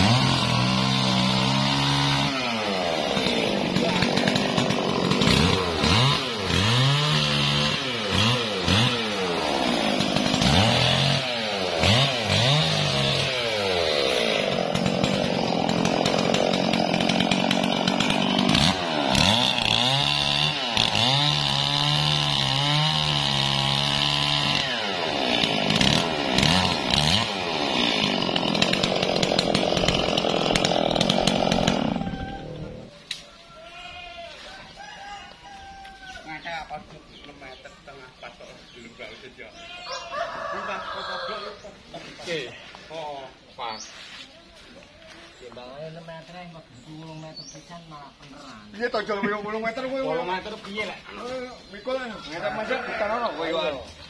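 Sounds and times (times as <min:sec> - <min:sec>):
chainsaw cutting wood: 0:00.0 - 0:33.2.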